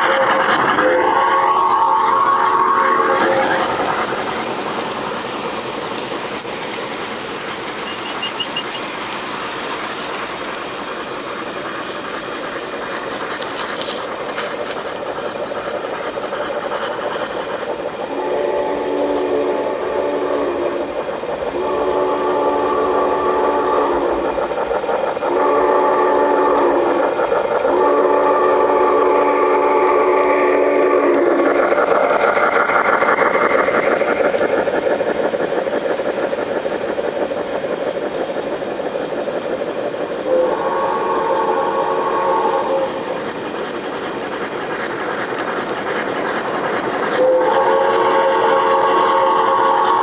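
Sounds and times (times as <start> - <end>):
model train rumbling on track: 0.0 - 50.0
train chime whistle: 47.2 - 50.0.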